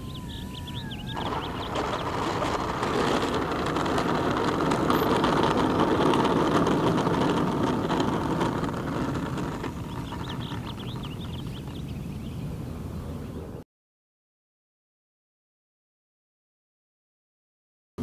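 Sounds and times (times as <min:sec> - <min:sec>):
model plane rolling on asphalt: 0:00.0 - 0:13.6.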